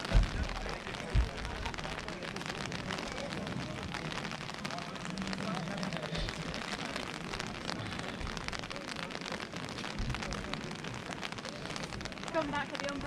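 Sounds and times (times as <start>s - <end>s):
low thumps: 0.0s - 1.8s
rain patter: 0.0s - 13.0s.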